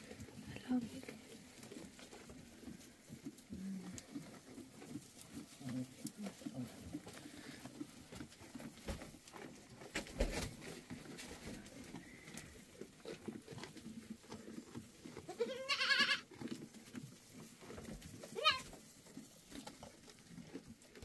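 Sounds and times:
knocks and rustling: 0:06.4 - 0:11.7
goat bleating: 0:15.1 - 0:16.3, 0:18.2 - 0:18.8.

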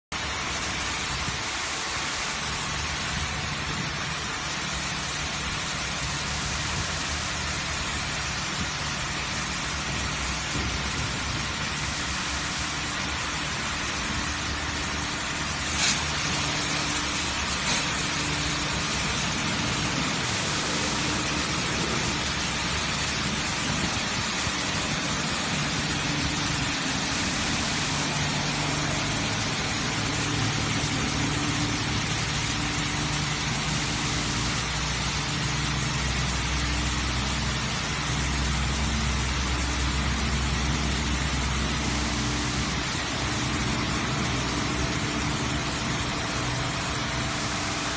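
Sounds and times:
high-pressure water jets hissing: 0:00.1 - 0:47.9
low mechanical hum: 0:00.1 - 0:47.9.

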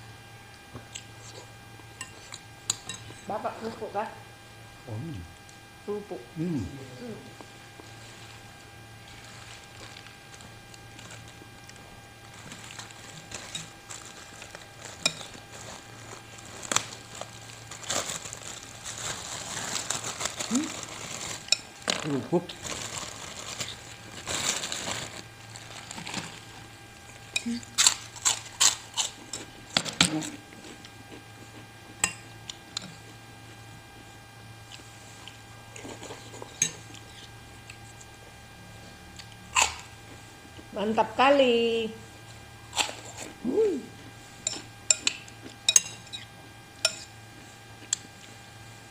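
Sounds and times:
crackers crackling as eaten: 0:09.0 - 0:31.6, 0:39.2 - 0:39.9, 0:42.7 - 0:43.4, 0:46.8 - 0:48.4
spoon clinking against bowl: 0:44.5 - 0:46.1.

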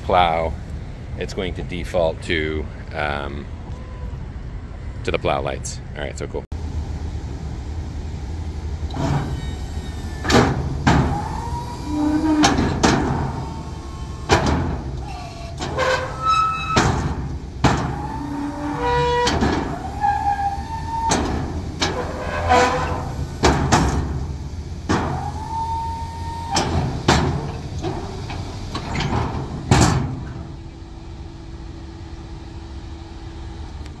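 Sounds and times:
truck engine idling: 0:06.5 - 0:34.0
hydraulic pump whining: 0:08.8 - 0:30.8
plow blade clunks: 0:08.9 - 0:30.8.

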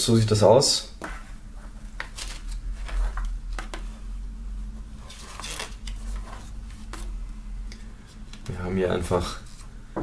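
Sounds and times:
low steady hum: 0:00.0 - 0:10.0
paper pages rustling: 0:01.9 - 0:03.8, 0:05.0 - 0:07.2.

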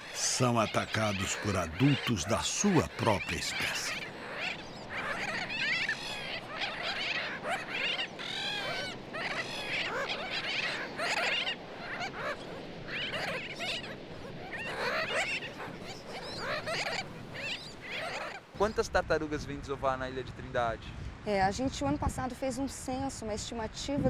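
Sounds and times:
seabird colony calling: 0:00.0 - 0:18.8.

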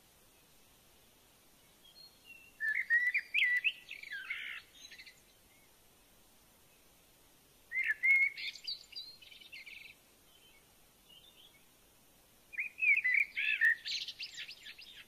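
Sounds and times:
bird twittering: 0:01.9 - 0:05.2, 0:07.7 - 0:10.0, 0:12.6 - 0:15.0.

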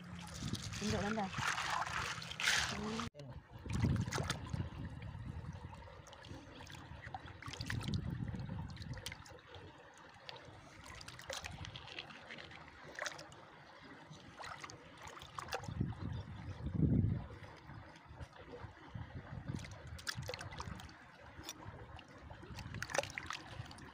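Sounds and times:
low sloshing rumbles: 0:00.0 - 0:23.9
hands splashing in shallow water: 0:00.3 - 0:03.1, 0:03.7 - 0:04.6.

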